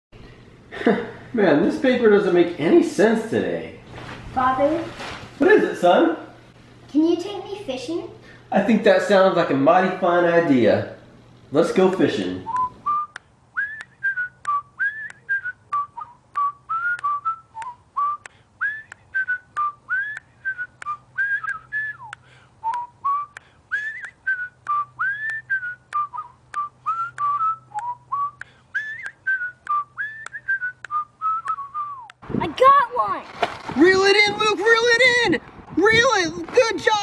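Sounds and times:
whistled tune: 12.5 - 32.2.

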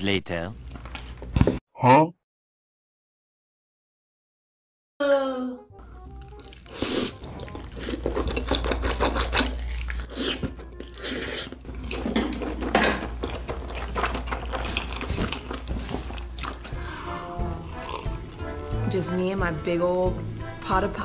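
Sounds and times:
slurping and chewing soup: 5.8 - 18.7.

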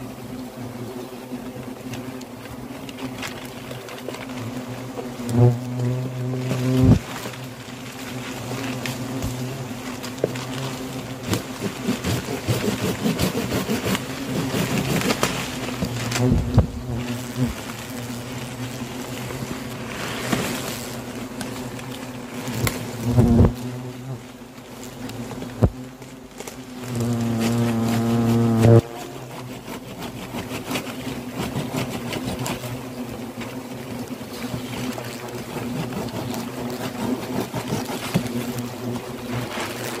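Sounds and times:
hornets buzzing: 0.0 - 40.0
plastic bag rustling: 2.6 - 23.1, 25.2 - 30.2.

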